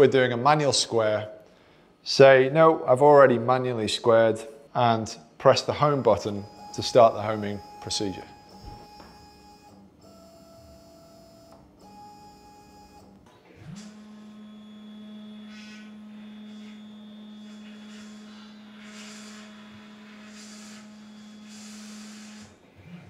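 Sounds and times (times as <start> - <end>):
stepper motor whine: 11.3 - 23.0.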